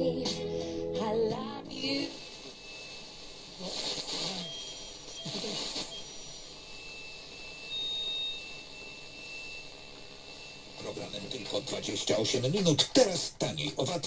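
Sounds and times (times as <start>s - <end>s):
radio static hiss: 0.0s - 14.0s
radio broadcast fragments: 1.7s - 7.4s, 9.7s - 14.0s
high radio whistles: 1.7s - 12.5s.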